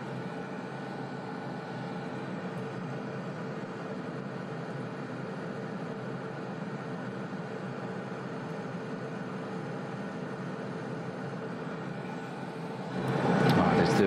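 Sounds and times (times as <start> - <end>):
machine hum: 0.0 - 14.0.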